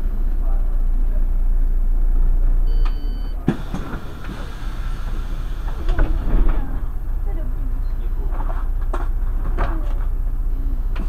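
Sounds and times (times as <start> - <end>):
bus engine and road rumble: 0.0 - 11.0
high two-tone beep: 2.7 - 3.4.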